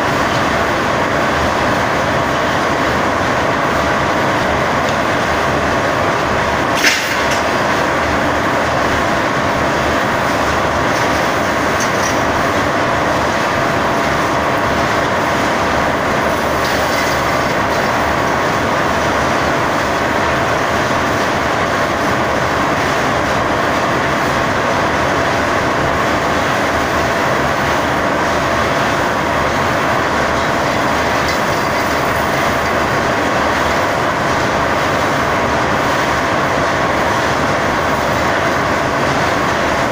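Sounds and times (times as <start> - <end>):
wire-drawing machinery running: 0.0 - 39.9.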